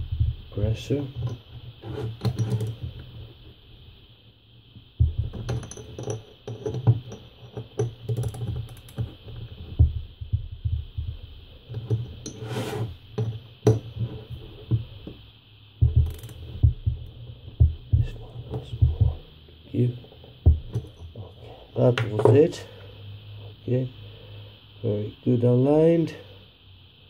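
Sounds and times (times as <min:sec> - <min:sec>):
socket ratchet clicking: 0:02.2 - 0:02.8, 0:05.3 - 0:09.2, 0:15.9 - 0:16.6
metal knocks: 0:20.4 - 0:21.2.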